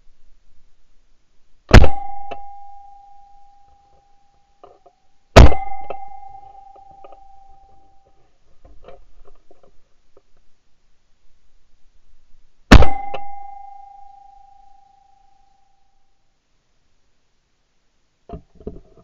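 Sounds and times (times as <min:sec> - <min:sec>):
shotgun shots: 0:01.7 - 0:02.2, 0:05.4 - 0:06.1, 0:12.7 - 0:13.2
steady ringing tone: 0:01.8 - 0:08.2, 0:12.8 - 0:16.1.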